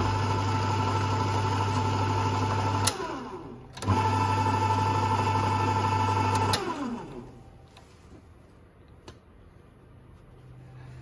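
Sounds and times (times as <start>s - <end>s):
lathe motor humming and whining: 0.0s - 7.2s.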